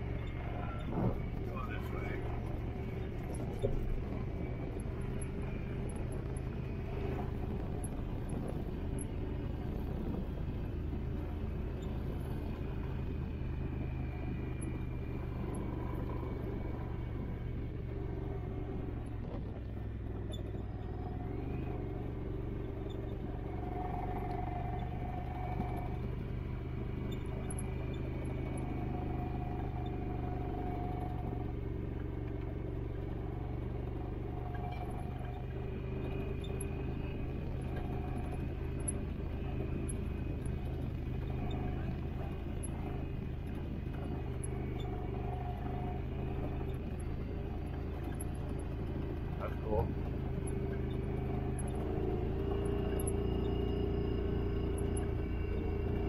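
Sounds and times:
off-road vehicle engine running: 0:00.0 - 0:56.0
faint high whine: 0:34.4 - 0:56.0.

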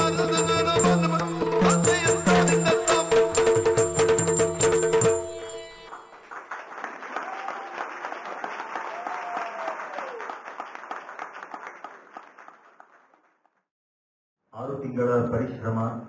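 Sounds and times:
audience clapping: 0:05.8 - 0:13.6.

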